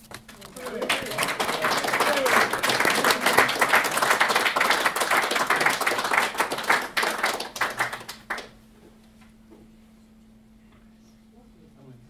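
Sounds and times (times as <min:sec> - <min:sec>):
group of people applauding: 0:00.0 - 0:08.6.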